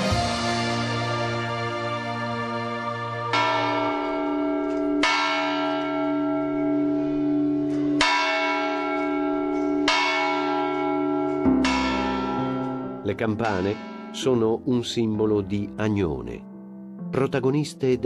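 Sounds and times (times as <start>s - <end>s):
church bells tolling: 3.3s - 16.6s.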